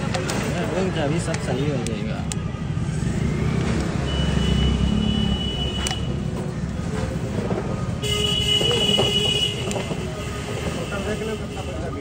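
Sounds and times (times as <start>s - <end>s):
motor vehicle rumble: 0.0s - 12.0s.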